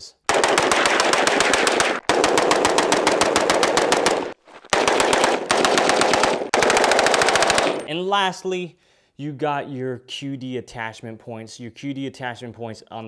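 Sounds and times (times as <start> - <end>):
rapid rifle gunfire: 0.3 - 7.9.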